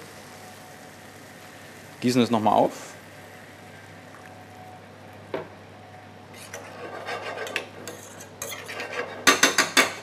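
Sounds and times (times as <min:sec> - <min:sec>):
metal spoon scraping saucepan: 0:06.4 - 0:09.4.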